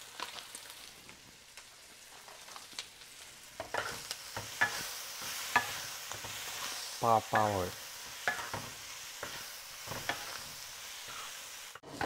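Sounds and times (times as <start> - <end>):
meat sizzling in a wok: 0.0 - 12.0
spatula scraping pan: 3.6 - 12.0.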